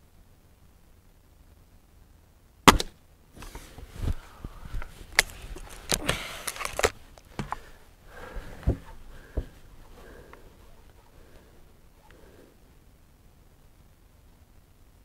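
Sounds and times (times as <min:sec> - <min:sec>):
air rifle firing: 0:02.7 - 0:03.0
rifle barrel snapping shut: 0:02.7 - 0:03.0.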